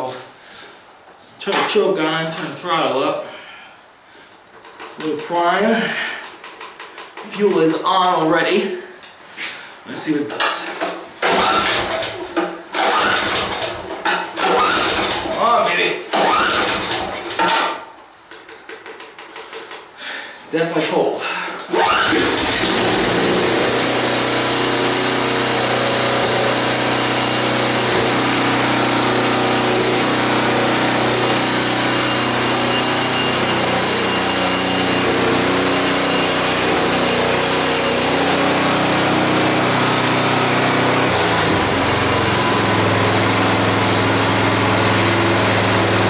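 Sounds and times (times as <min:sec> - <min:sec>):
snowblower engine running: 0:11.2 - 0:15.5, 0:16.2 - 0:17.4, 0:21.7 - 0:46.0.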